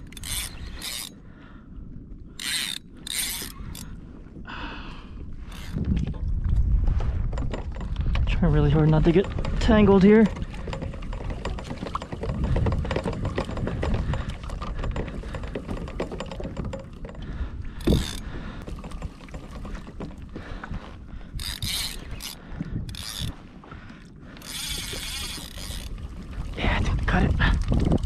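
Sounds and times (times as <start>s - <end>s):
fishing reel ratchet clicking: 0.0s - 1.2s, 2.4s - 4.0s, 5.5s - 5.8s, 17.8s - 18.2s, 21.4s - 23.4s, 24.4s - 25.9s.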